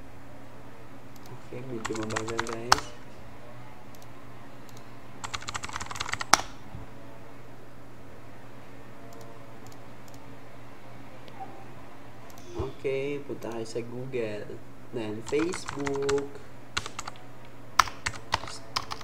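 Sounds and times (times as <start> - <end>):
typing on computer keyboard: 1.8 - 2.9, 5.2 - 6.5, 15.3 - 17.2, 17.8 - 19.0.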